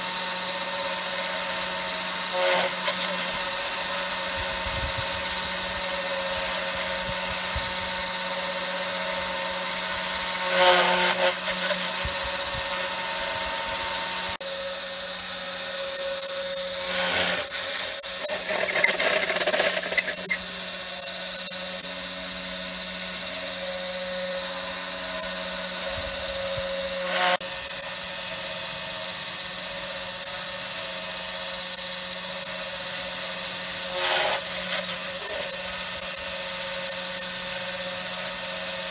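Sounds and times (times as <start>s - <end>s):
bit cutting wood: 0.0s - 38.9s
router spindle whine: 0.0s - 38.9s.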